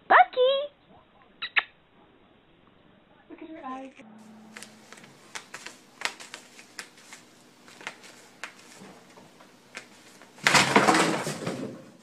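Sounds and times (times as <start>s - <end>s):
cat scratching mat: 4.4s - 10.6s.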